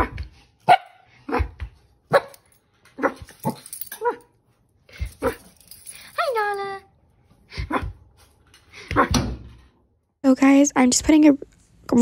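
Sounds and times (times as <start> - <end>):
small dog barking: 0.7 - 1.5, 2.1 - 2.4.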